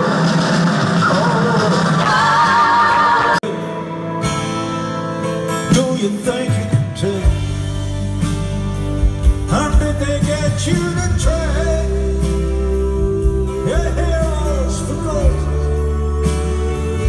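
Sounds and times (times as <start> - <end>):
acoustic guitar: 0.0 - 17.0
rock band playing: 0.0 - 17.0
man singing: 5.6 - 8.1, 9.3 - 17.0.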